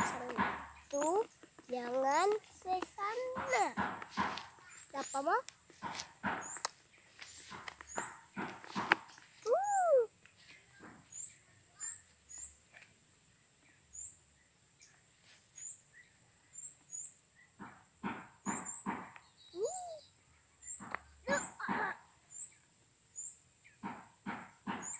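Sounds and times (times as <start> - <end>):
animal chirps: 9.4 - 10.1, 19.4 - 21.7
rising and falling animal call: 9.4 - 10.1, 19.6 - 20.0
sharp animal calls: 19.6 - 20.0.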